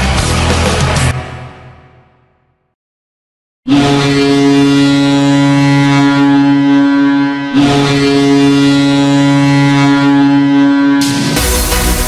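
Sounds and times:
deep goal horn blasts: 3.7s - 12.0s.

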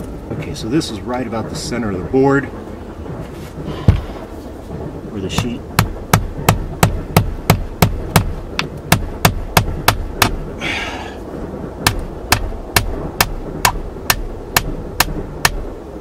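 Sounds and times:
short rustle: 3.2s - 4.7s
hammer striking a nail: 5.4s - 10.4s, 11.8s - 15.6s.

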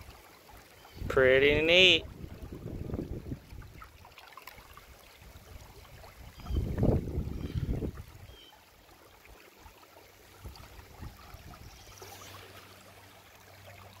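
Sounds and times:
creek trickling over rocks: 0.0s - 14.0s.

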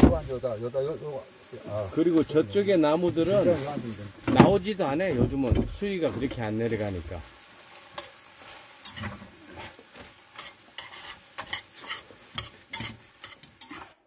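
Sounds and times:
food sizzling in frying pan: 0.0s - 14.0s.

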